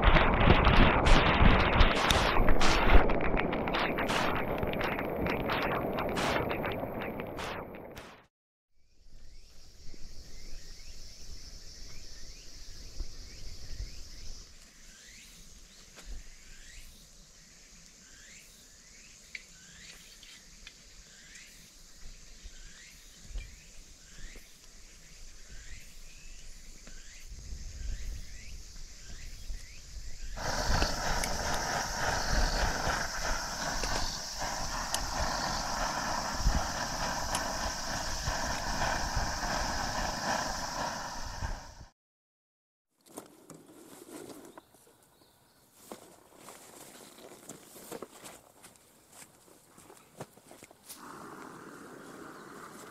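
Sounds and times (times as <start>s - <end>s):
camp stove roaring: 0.0s - 8.0s, 30.4s - 41.9s
insect hiss: 0.0s - 8.0s, 8.8s - 41.9s, 50.8s - 52.9s.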